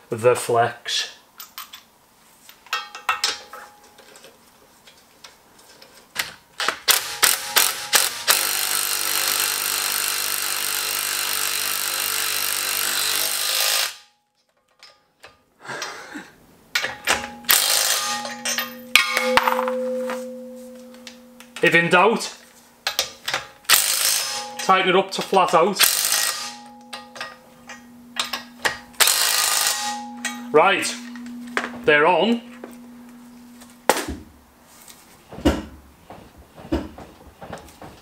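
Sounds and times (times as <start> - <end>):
bolts and socket clinking: 2.6 - 7.7, 16.7 - 21.8, 22.8 - 34.1
impact wrench rattling: 16.7 - 21.7, 22.8 - 34.3.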